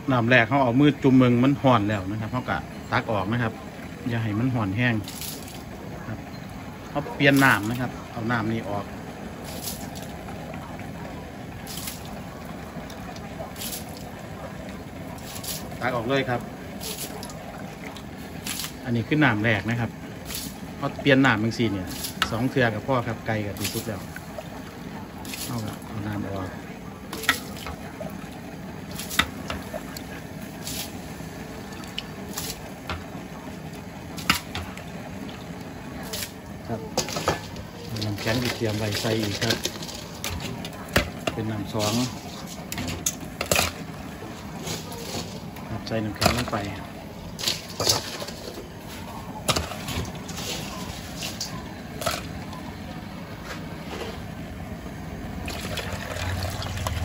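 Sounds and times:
water splashing and dribbling: 0.0s - 57.0s
ice and ladle clinking on metal: 27.1s - 27.8s, 36.0s - 45.4s, 46.0s - 52.3s.

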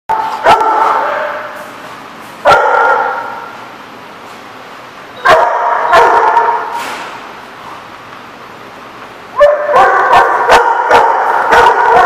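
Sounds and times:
dog barking in echoing room: 0.1s - 1.8s, 2.4s - 3.7s, 5.2s - 6.8s, 9.4s - 12.0s.

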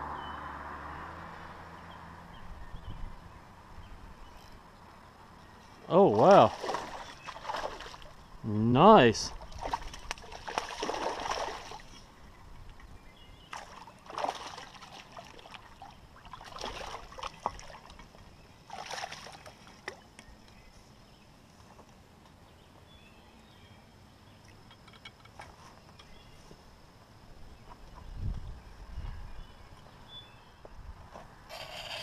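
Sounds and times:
water sloshing and splashing: 5.9s - 8.3s, 9.3s - 20.2s.

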